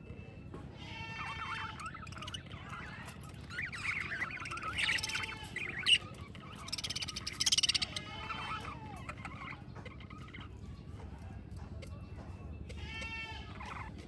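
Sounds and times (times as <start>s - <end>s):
budgerigars warbling and chattering: 1.1s - 14.0s
high chirps: 1.4s - 8.1s.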